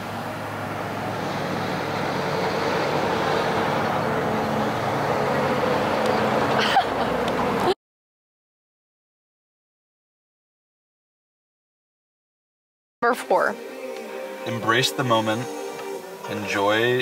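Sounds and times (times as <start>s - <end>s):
outdoor rushing noise: 0.0s - 7.8s.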